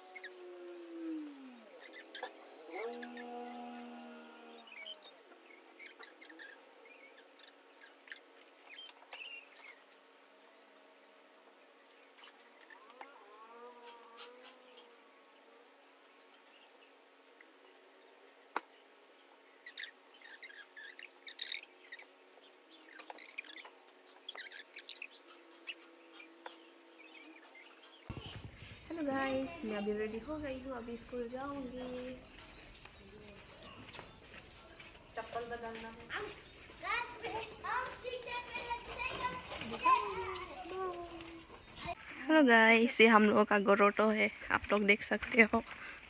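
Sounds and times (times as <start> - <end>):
low hum: 0.0 - 5.8, 25.0 - 35.0
small birds chirping: 0.0 - 46.0.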